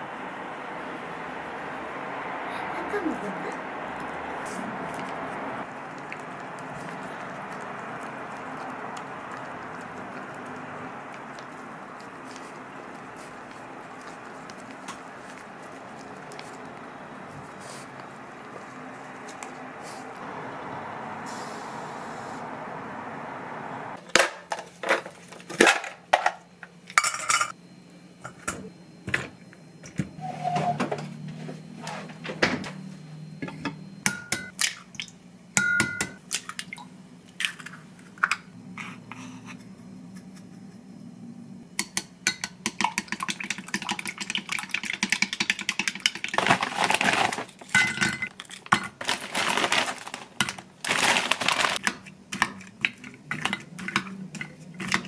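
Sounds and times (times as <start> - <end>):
chopsticks beating eggs in glass jug: 41.8 - 47.4.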